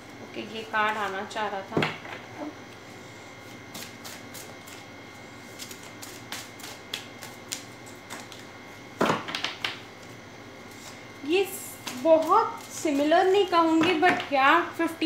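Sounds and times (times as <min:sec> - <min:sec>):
cards being shuffled: 0:05.6 - 0:08.5.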